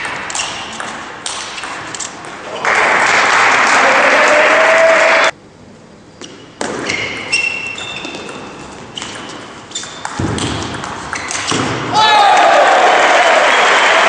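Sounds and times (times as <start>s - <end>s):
applause: 2.6s - 5.3s, 12.6s - 14.0s
table tennis ball hits: 9.8s - 11.9s.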